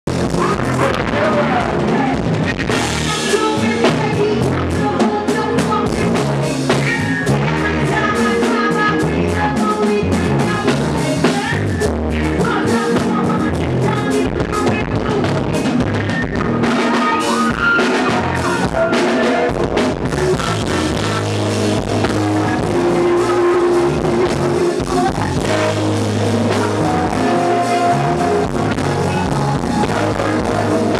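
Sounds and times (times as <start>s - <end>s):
drum kit: 0.0s - 30.9s
live band playing loud music: 0.0s - 30.9s
person singing into a microphone: 0.1s - 30.9s.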